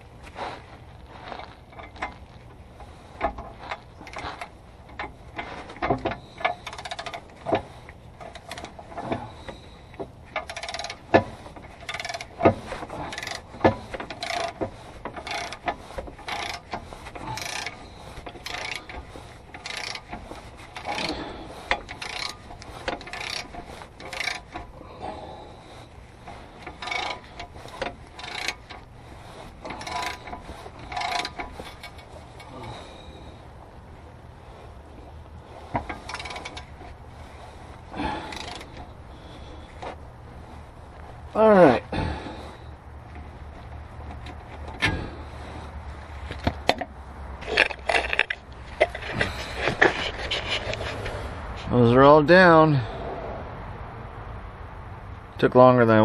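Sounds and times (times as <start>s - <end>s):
ratchet wrench clicking: 3.2s - 24.8s, 25.7s - 33.2s, 35.8s - 36.9s, 38.0s - 38.8s.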